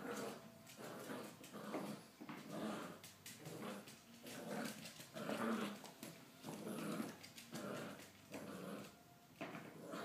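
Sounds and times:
puppy growling: 0.0s - 9.0s, 9.7s - 10.0s.

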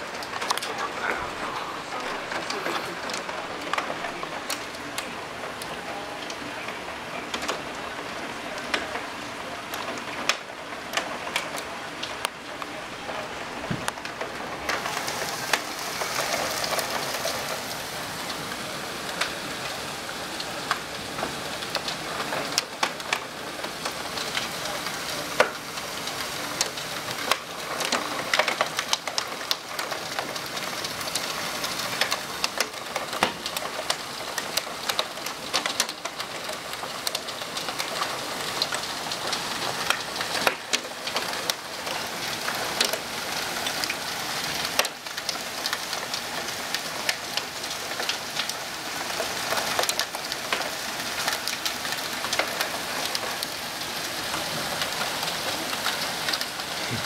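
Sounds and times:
hailstones ticking: 0.0s - 57.0s
heavy rain hissing: 0.0s - 57.0s.

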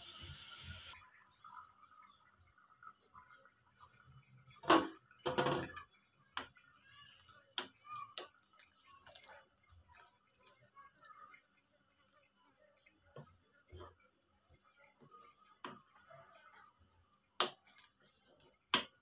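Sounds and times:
wooden spoon stirring thick food: 5.7s - 19.0s.

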